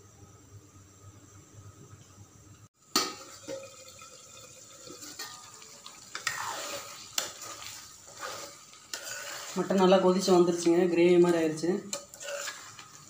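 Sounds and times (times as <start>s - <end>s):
thick gravy sloshing and scraping: 5.0s - 13.0s.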